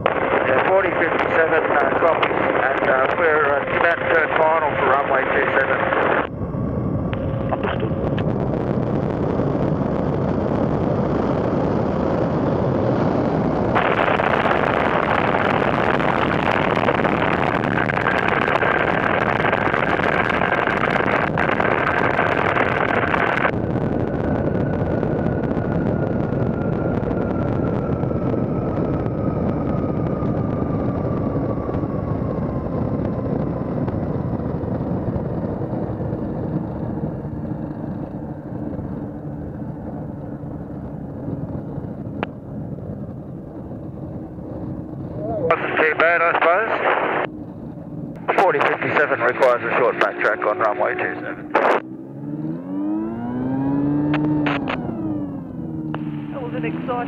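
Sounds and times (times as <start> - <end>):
light aircraft engine: 0.0 - 57.0
wind noise: 0.0 - 57.0.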